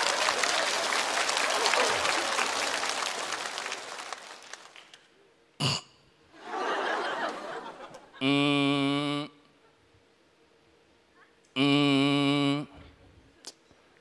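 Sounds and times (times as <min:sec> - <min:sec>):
audience laughter: 0:00.0 - 0:02.9, 0:06.4 - 0:08.2
audience applause: 0:00.0 - 0:05.0.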